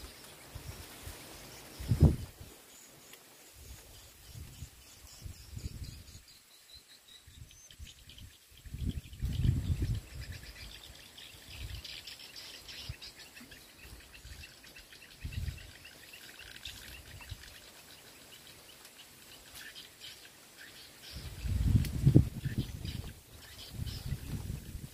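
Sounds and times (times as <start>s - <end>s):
bird calls: 3.6s - 24.7s
low rumbling on microphone: 8.7s - 10.3s.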